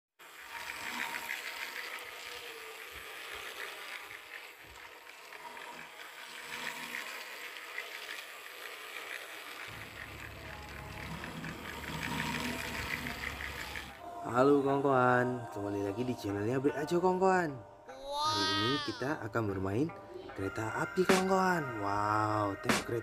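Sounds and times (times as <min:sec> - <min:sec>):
toy train clicking rattle: 0:00.2 - 0:14.0.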